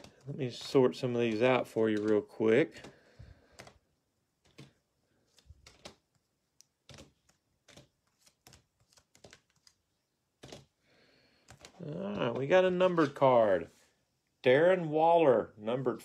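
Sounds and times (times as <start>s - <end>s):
cards tapping on tabletop: 0.0s - 9.8s, 10.4s - 10.7s, 11.4s - 13.2s.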